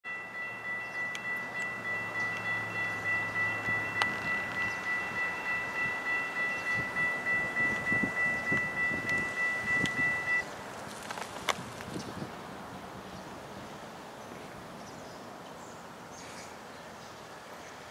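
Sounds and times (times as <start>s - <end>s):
railroad crossing bell ringing: 0.0s - 10.5s.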